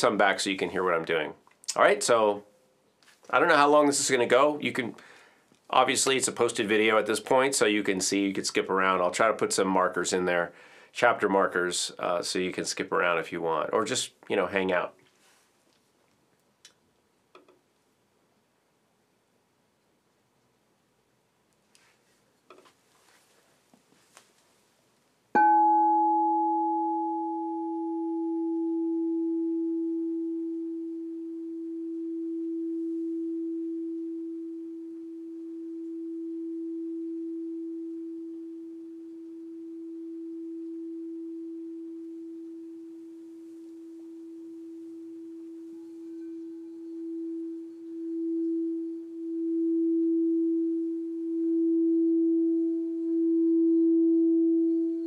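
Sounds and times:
singing bowl struck and ringing: 0:25.4 - 0:42.6, 0:44.2 - 0:55.0
mallet rubbing bowl rim: 0:42.1 - 0:50.3.

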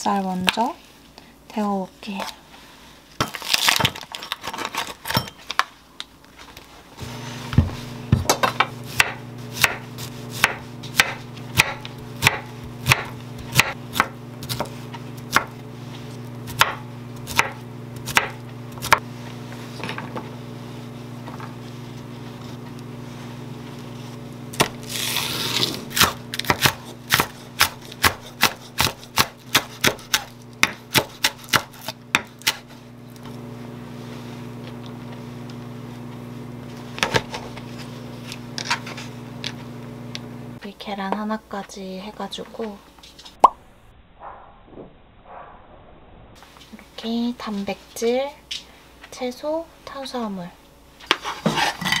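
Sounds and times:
microwave oven hum: 0:04.9 - 0:44.0
knife chopping on wooden board: 0:07.6 - 0:15.5, 0:16.5 - 0:19.0, 0:25.6 - 0:32.6.

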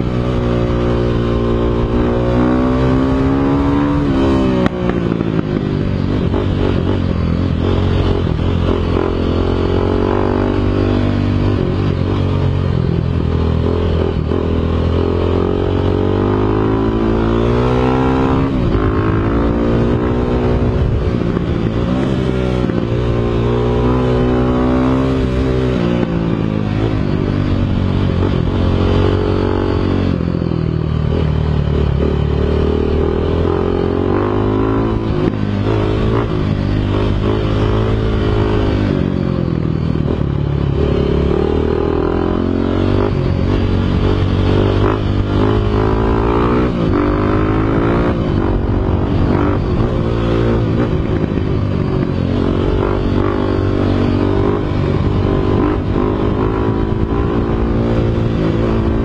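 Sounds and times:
dirt bike engine revving: 0:00.0 - 0:12.6, 0:31.1 - 0:39.4, 0:40.0 - 0:59.0.

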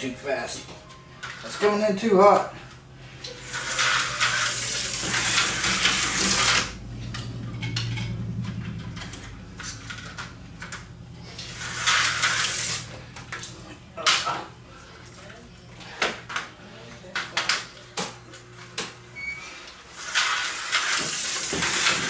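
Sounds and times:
low steady hum: 0:00.0 - 0:19.4
slot car buzzing and rattling: 0:03.2 - 0:13.1, 0:19.9 - 0:22.0.

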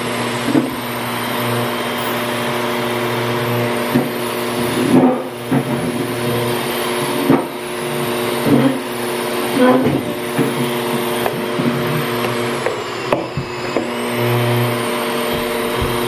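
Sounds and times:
grooming vacuum motor hum: 0:00.0 - 0:16.0.

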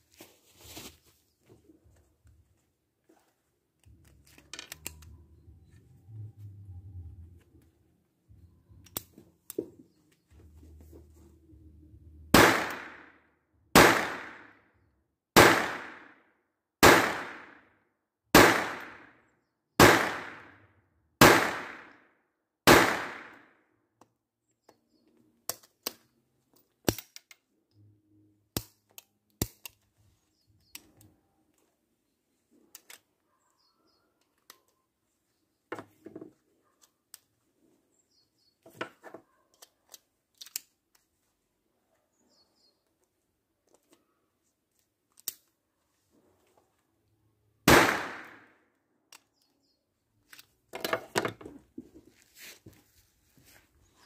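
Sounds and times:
pistol being handled clicks: 0:03.8 - 0:05.2, 0:08.8 - 0:09.6, 0:25.4 - 0:27.8, 0:28.5 - 0:29.9, 0:32.7 - 0:33.1, 0:39.5 - 0:41.1, 0:44.8 - 0:45.6, 0:49.1 - 0:49.6
pistol shots: 0:12.3 - 0:13.2, 0:13.8 - 0:14.6, 0:15.4 - 0:16.2, 0:16.8 - 0:17.6, 0:18.3 - 0:19.1, 0:19.8 - 0:20.6, 0:21.2 - 0:22.0, 0:22.6 - 0:23.5, 0:47.6 - 0:48.5.

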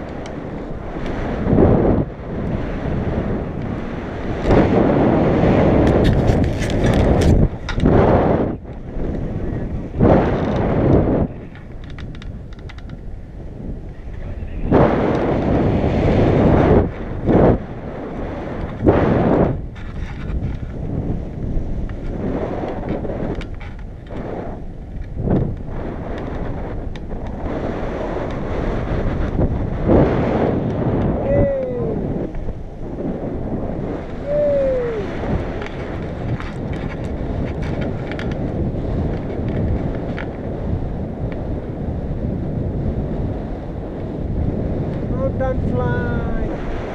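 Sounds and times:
wind buffeting microphone: 0:00.0 - 0:46.9.

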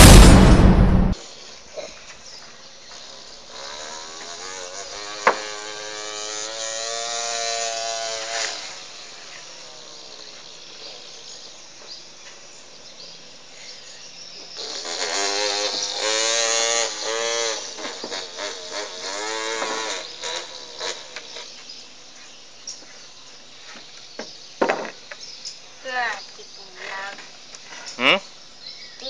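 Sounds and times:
child imitating chainsaw: 0:14.6 - 0:21.4.

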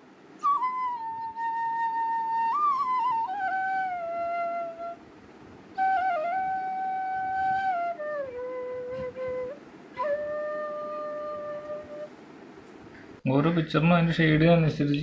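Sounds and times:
flute-like melody: 0:00.4 - 0:05.0, 0:05.7 - 0:12.1.

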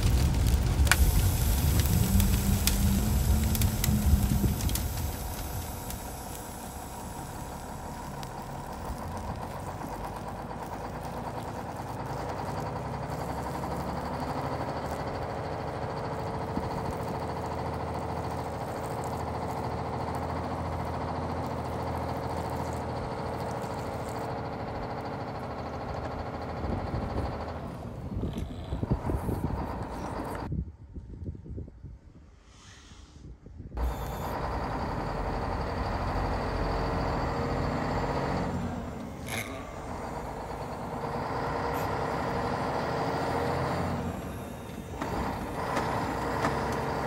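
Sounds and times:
electric water pump humming: 0:00.0 - 0:27.8.

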